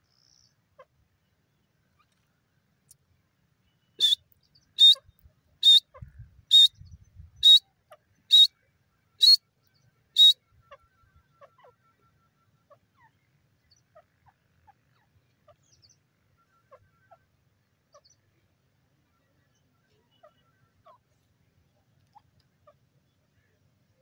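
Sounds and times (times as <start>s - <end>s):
bird calling sharp high calls: 3.7s - 9.4s, 10.1s - 17.3s.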